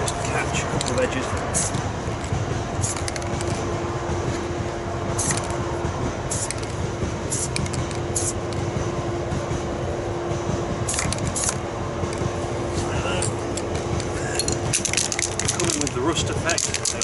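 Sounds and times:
spray paint can squirts: 0:01.5 - 0:01.8, 0:02.8 - 0:03.3, 0:05.2 - 0:05.5, 0:06.3 - 0:06.7, 0:07.3 - 0:08.4, 0:10.9 - 0:11.6.

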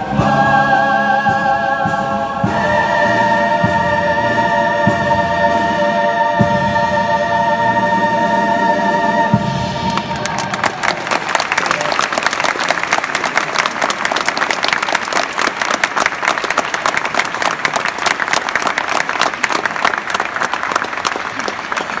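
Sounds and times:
audience applauding: 0:09.8 - 0:22.0.

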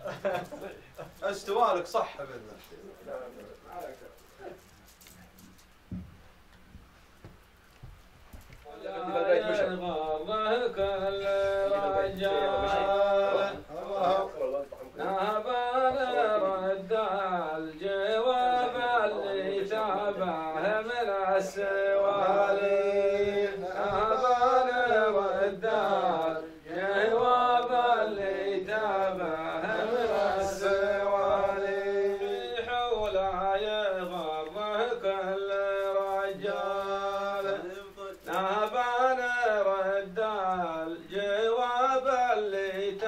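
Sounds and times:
man chanting a slow melody: 0:08.7 - 0:43.0.

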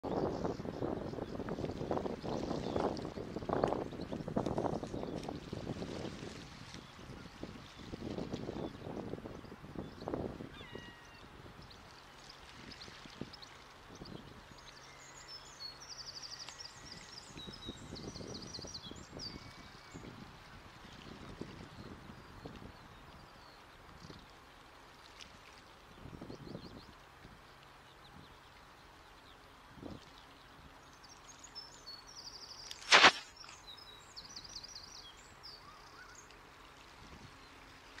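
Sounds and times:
small birds chirping: 0:09.4 - 0:20.1, 0:27.8 - 0:36.4
water splashing: 0:32.6 - 0:33.7.

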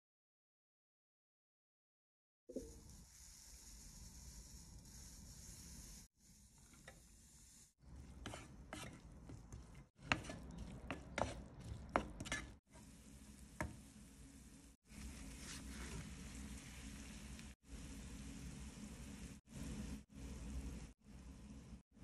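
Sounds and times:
onion sizzling in oil: 0:02.5 - 0:21.5
spatula scraping a pan: 0:03.1 - 0:13.0, 0:14.9 - 0:17.2.

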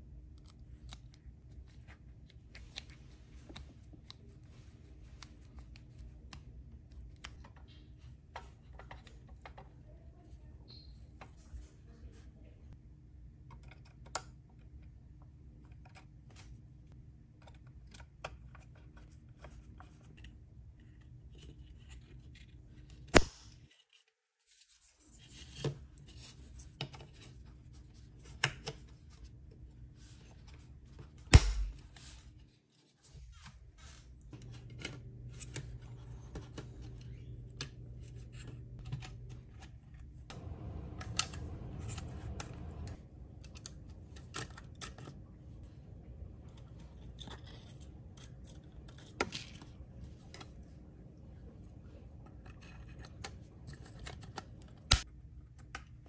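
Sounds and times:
small clicks taps and scrapes: 0:05.0 - 0:09.9, 0:34.2 - 0:45.2, 0:52.1 - 0:56.0
low steady hum: 0:25.0 - 0:56.0.

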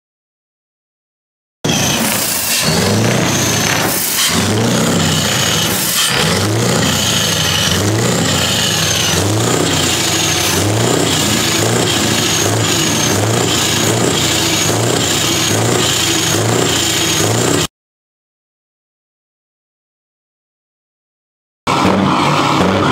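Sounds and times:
diesel truck engine revving: 0:01.6 - 0:17.7, 0:21.7 - 0:22.9.

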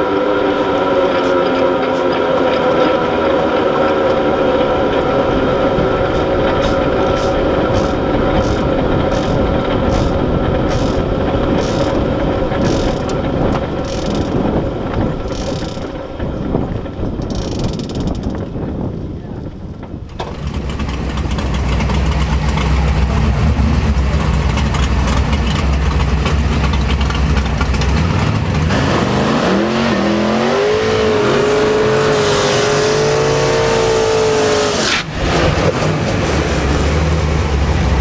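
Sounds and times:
drag car engine droning: 0:00.0 - 0:19.1, 0:19.8 - 0:38.0.

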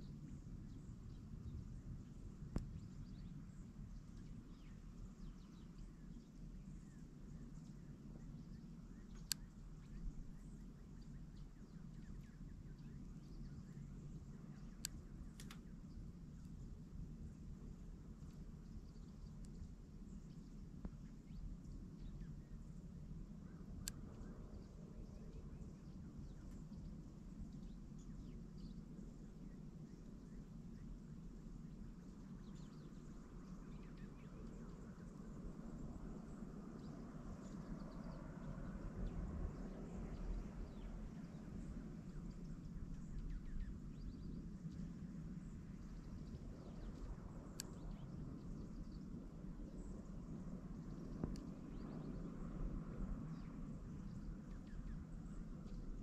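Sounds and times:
songbirds chirping: 0:00.0 - 0:56.0
steady low rumble: 0:00.0 - 0:56.0
sharp click: 0:09.2 - 0:09.5, 0:14.8 - 0:15.7
sharp tick: 0:09.2 - 0:09.5, 0:14.8 - 0:15.7, 0:23.8 - 0:24.2, 0:47.5 - 0:48.1, 0:51.2 - 0:51.6.

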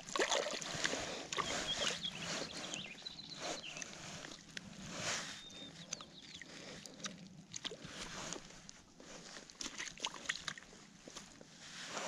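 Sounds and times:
fish splashing in water: 0:00.0 - 0:02.8, 0:09.4 - 0:11.2.

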